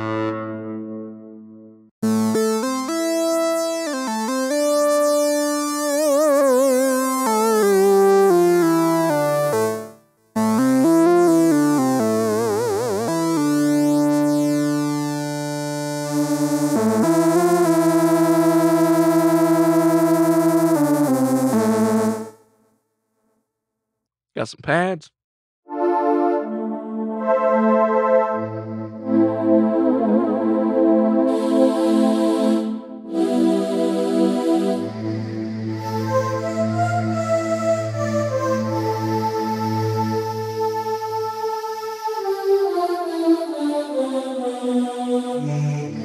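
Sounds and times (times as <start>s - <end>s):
synthesizer chords: 0.0s - 22.4s, 25.7s - 43.7s.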